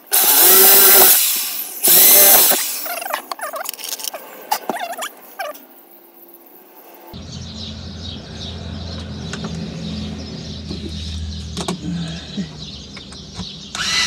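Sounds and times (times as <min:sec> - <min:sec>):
cordless drill driving screw: 0:13.8 - 0:14.0.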